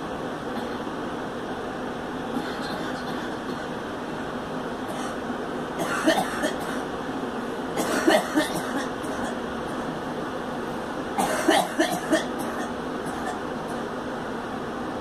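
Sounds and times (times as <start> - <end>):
steady background noise: 0.0 - 15.0
girl coughing: 5.8 - 6.8, 7.8 - 9.4, 11.2 - 13.4.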